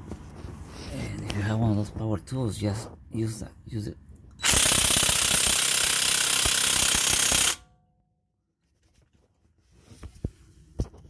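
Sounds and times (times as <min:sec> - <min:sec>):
impact wrench hammering: 0:04.4 - 0:07.8.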